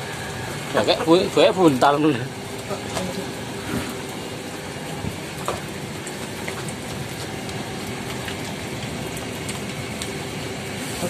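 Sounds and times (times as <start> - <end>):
heavy rain falling: 0.0 - 11.0.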